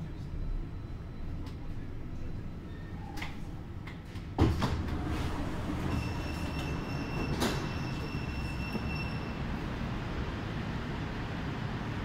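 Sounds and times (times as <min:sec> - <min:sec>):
train doors clunking open: 0:02.9 - 0:09.2.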